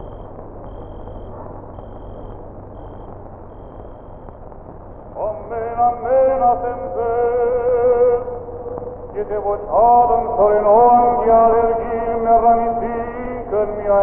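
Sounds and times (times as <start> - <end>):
film soundtrack hiss: 0.0 - 14.0
slow chant-like melody: 5.1 - 14.0.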